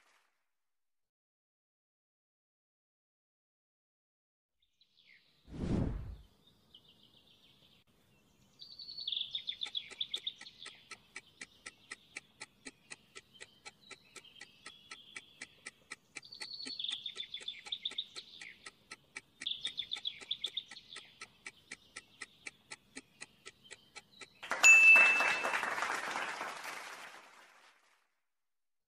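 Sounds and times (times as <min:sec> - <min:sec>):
trilling birdsong: 0:04.6 - 0:05.5, 0:06.2 - 0:25.8
timer ticking: 0:09.2 - 0:25.0.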